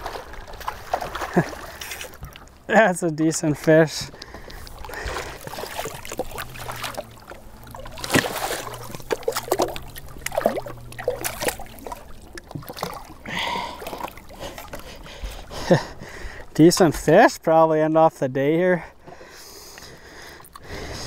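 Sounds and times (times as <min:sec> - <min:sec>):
fish thrashing and splashing: 0:00.0 - 0:02.7, 0:04.0 - 0:16.5
water sloshing: 0:00.0 - 0:17.1.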